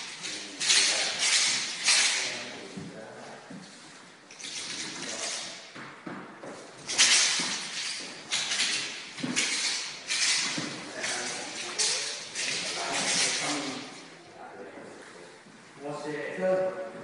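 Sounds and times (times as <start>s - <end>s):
metal rings rattling: 0.0s - 2.6s, 4.3s - 5.8s, 6.8s - 14.2s.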